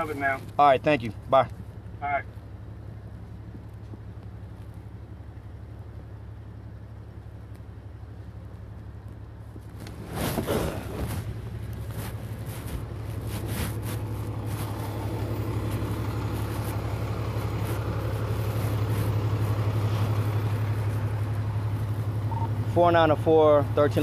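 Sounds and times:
idling vehicle engines hum: 0.0 - 24.0
knocks and rustling: 9.5 - 21.4.

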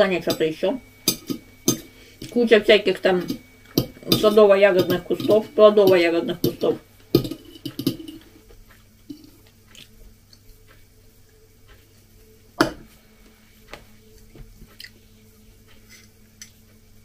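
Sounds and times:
cutlery clicking on a plate: 1.1 - 1.9, 3.2 - 8.3.

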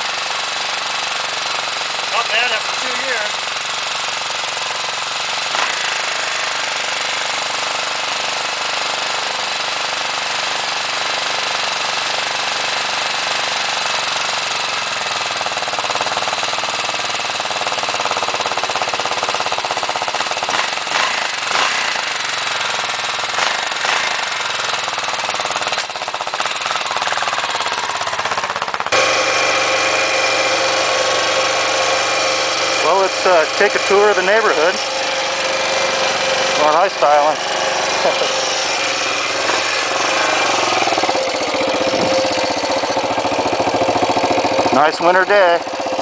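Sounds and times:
engine revving: 0.0 - 46.0
motorcycle engine idling: 0.0 - 46.0.

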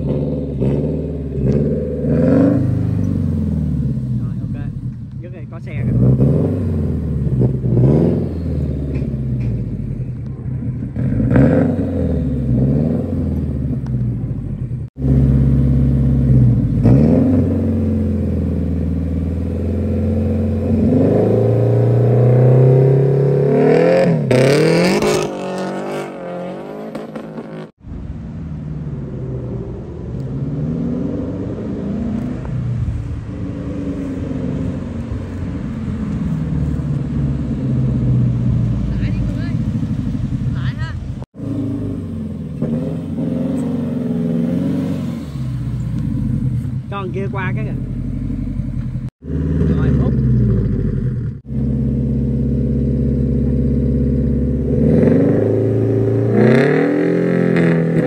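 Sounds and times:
performance car engine revving: 0.0 - 27.8, 28.8 - 58.0.

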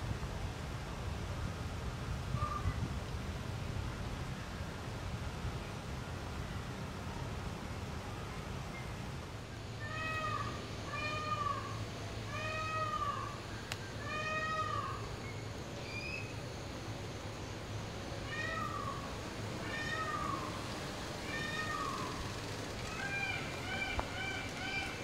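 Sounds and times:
peacock calling: 9.8 - 16.4, 18.2 - 25.0.

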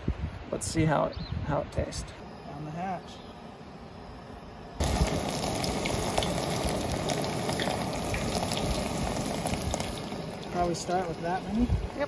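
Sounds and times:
meat deep-frying with pops: 4.6 - 12.0.

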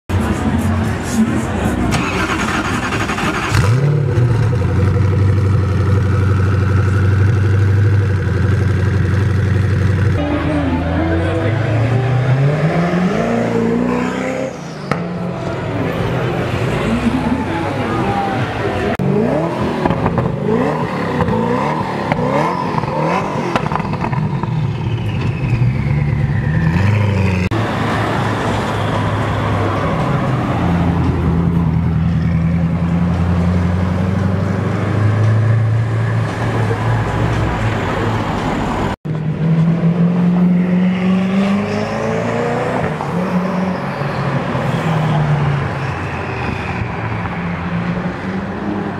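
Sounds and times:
car engine revving: 0.2 - 28.5.

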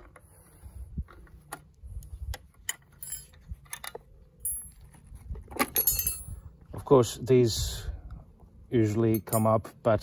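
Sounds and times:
metal clicks and clinks: 2.7 - 5.0, 5.6 - 6.4, 9.1 - 9.6
ringing metal clink: 4.4 - 4.8, 5.8 - 6.4, 9.1 - 9.6.

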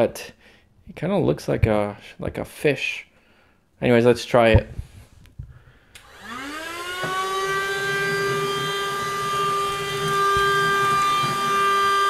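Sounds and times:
vacuum motor whining: 6.0 - 12.0.

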